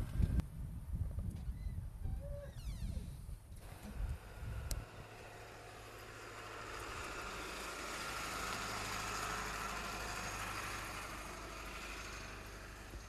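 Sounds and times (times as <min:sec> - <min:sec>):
truck engine driving past: 0:03.6 - 0:13.0.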